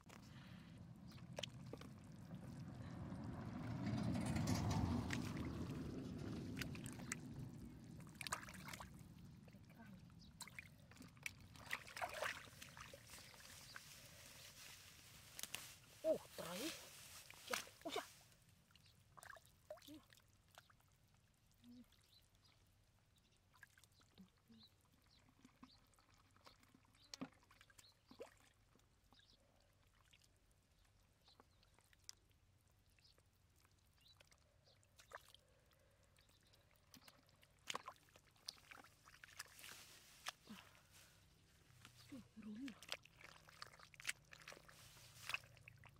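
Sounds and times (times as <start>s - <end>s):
water sloshing and splashing: 0.0s - 21.1s, 23.4s - 30.4s, 33.6s - 45.9s
watery rush: 1.0s - 9.7s, 10.4s - 18.2s.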